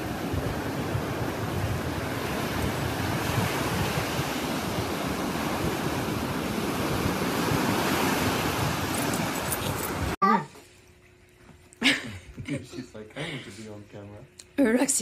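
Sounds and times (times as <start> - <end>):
waves breaking on beach: 0.0 - 10.2
wind on microphone: 0.0 - 10.2.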